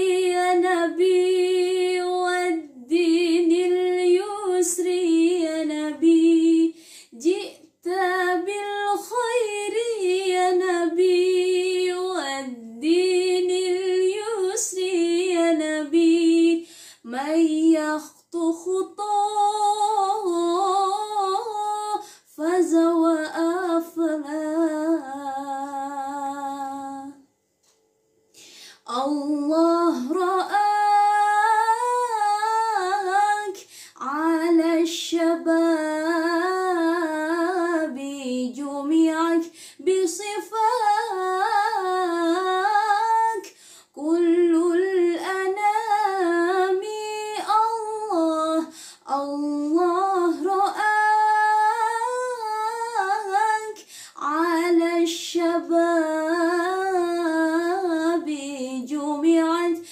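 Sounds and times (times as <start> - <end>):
woman singing unaccompanied: 0.0 - 27.2, 28.8 - 59.9.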